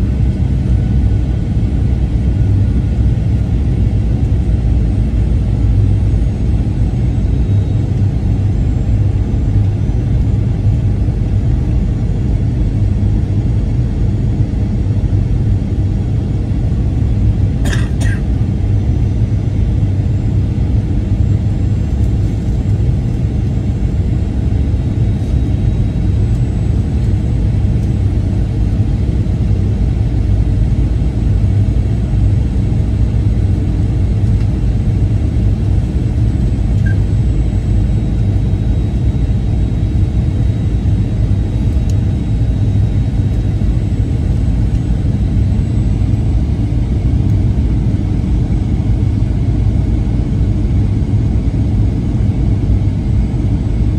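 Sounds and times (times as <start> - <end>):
aircraft cabin engine rumble: 0.0 - 53.9
faint high whine: 6.1 - 9.0, 36.4 - 47.0.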